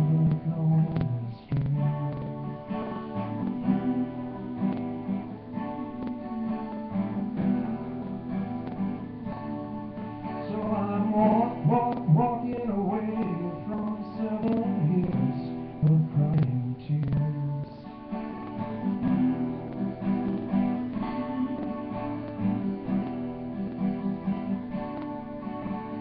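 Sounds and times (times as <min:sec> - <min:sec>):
man singing: 0:00.0 - 0:08.6, 0:10.3 - 0:23.1
acoustic guitar strumming: 0:00.0 - 0:26.0.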